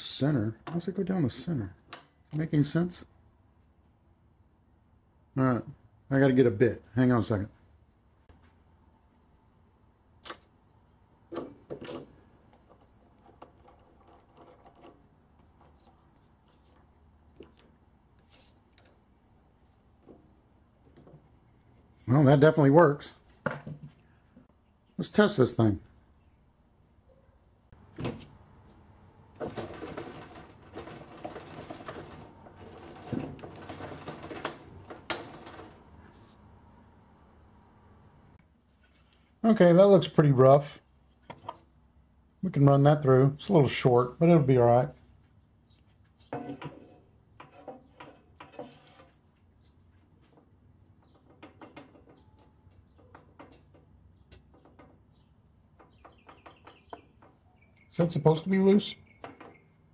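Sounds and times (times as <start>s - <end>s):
crank mechanical rattle: 29.4s - 36.0s.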